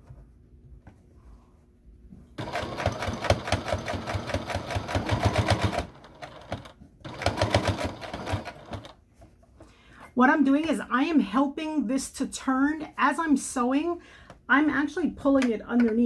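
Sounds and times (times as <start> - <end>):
sewing machine stitching: 2.4 - 9.0.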